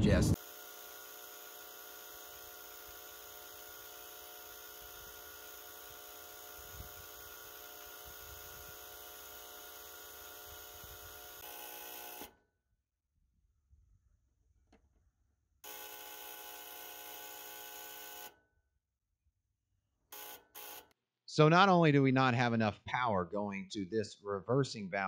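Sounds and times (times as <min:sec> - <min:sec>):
solenoid coil buzzing: 0:20.1 - 0:21.0.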